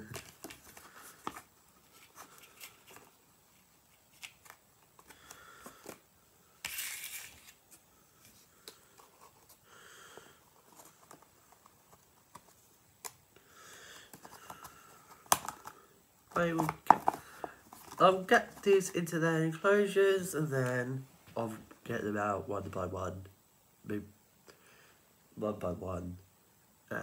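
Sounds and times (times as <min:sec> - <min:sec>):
packaging rustling and crinkling: 0:00.0 - 0:06.0, 0:14.1 - 0:18.8.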